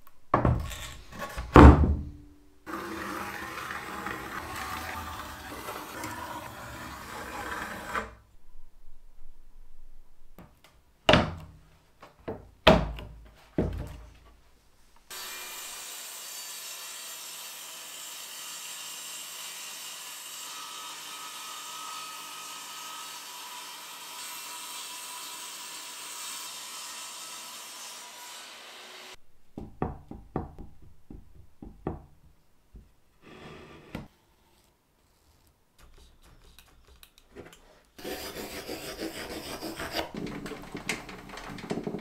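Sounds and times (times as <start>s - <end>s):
table saw ripping wood: 0.6s - 1.6s, 2.7s - 8.2s, 38.0s - 42.0s
wooden block knocking: 29.5s - 33.0s.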